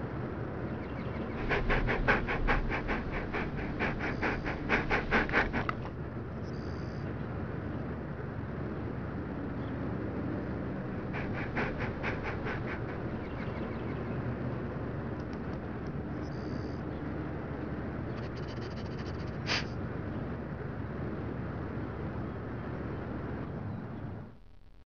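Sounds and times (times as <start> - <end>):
steady low rumble: 0.2 - 18.7
dog panting: 1.1 - 6.0, 10.8 - 14.2, 18.1 - 19.7.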